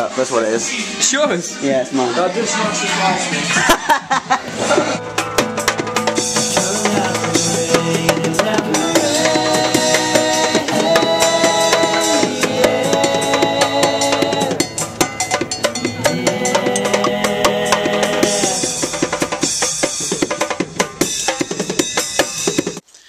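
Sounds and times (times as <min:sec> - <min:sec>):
music with held melodic notes: 0:00.0 - 0:22.8
drum kit beat: 0:03.2 - 0:22.8.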